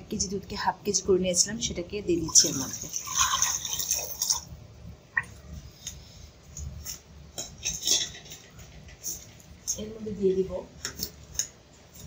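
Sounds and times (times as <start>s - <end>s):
milk pouring into a pan: 2.3s - 4.5s
pots and utensils clinking: 7.4s - 9.2s.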